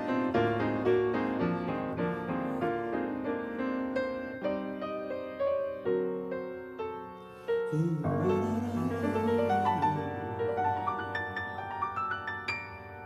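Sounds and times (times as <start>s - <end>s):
grand piano chords: 0.0s - 13.0s
man singing in a low voice: 7.7s - 11.1s.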